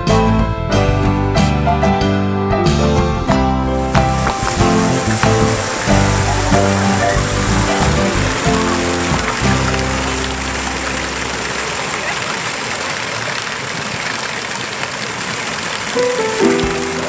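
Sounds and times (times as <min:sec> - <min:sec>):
music: 0:00.0 - 0:11.8, 0:16.0 - 0:17.0
fountain water jets splashing: 0:03.7 - 0:17.0.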